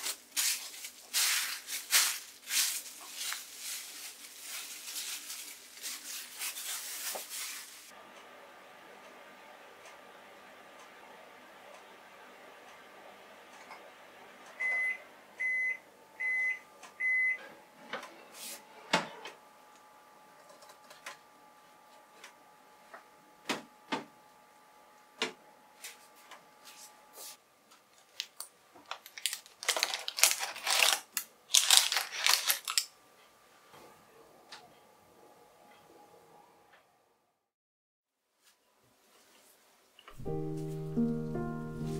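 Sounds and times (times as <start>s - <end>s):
pan clattering and paper rustling: 0.0s - 7.9s, 29.0s - 32.8s
oven beeping: 8.2s - 19.6s.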